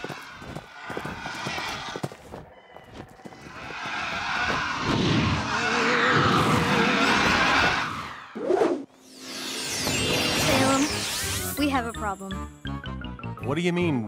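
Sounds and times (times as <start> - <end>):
bat rising cry: 3.5 - 8.3.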